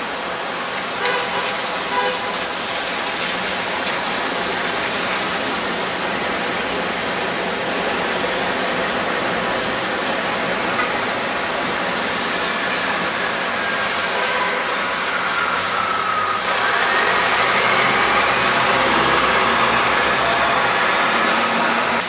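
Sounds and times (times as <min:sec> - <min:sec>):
cars driving past: 0:08.0 - 0:22.0.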